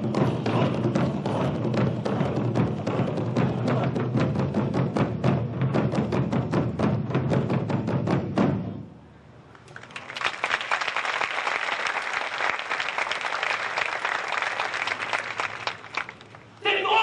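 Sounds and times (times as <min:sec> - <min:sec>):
drum ensemble beating fast rhythm: 0:00.0 - 0:08.6
audience applauding: 0:09.7 - 0:16.4.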